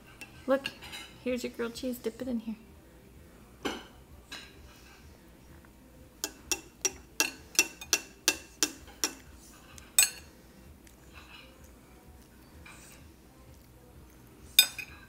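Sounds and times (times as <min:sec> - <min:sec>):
spoon clinking on ceramic bowl: 0:06.2 - 0:09.3, 0:10.0 - 0:10.3, 0:14.6 - 0:15.0.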